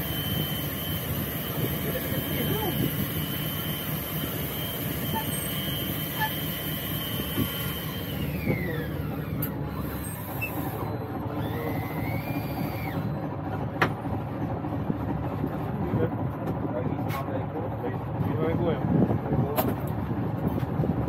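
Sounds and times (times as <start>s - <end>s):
high whine: 0.0s - 13.3s
boat engine rumbling: 0.0s - 21.0s.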